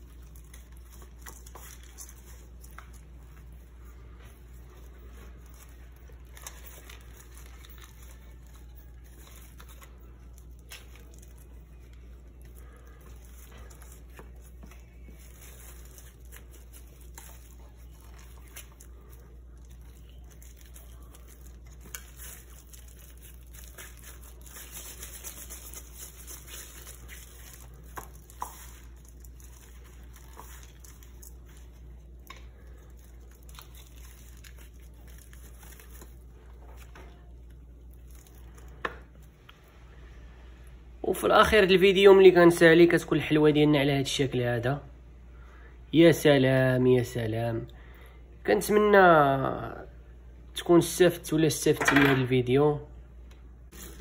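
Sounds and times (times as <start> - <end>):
rustling and crinkling of paper: 0.0 - 39.6, 53.7 - 54.0
steady low hum: 0.0 - 46.2.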